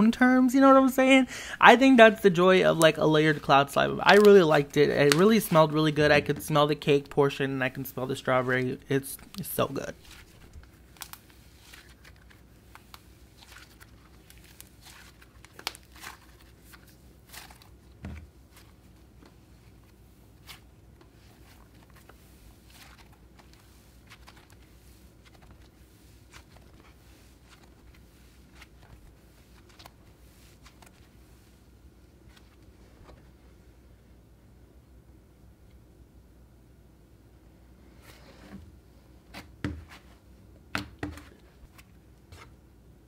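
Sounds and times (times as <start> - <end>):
slime crackling and tearing: 13.4 - 17.8.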